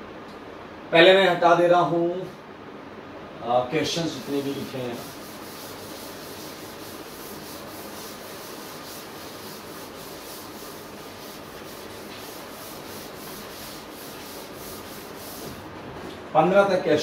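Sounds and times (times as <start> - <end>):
duster scrubbing chalkboard: 3.9 - 15.9.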